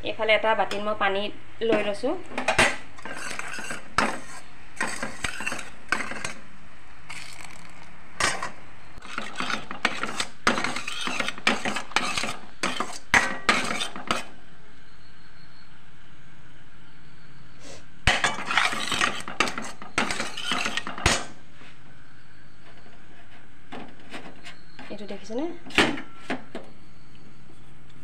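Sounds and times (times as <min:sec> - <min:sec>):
ladle scraping and clinking in pan: 0:02.5 - 0:06.4, 0:08.2 - 0:14.3, 0:18.1 - 0:21.3.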